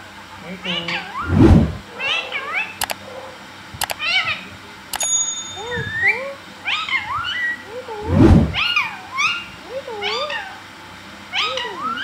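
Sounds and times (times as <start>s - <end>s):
muffled low bump: 1.3s - 1.8s, 8.1s - 8.6s
parakeet squeaky calls: 5.6s - 7.7s.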